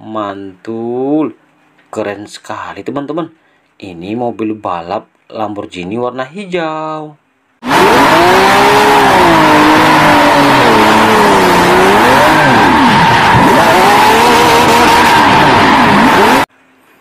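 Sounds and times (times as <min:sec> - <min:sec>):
sports car engine revving: 0:07.6 - 0:16.5.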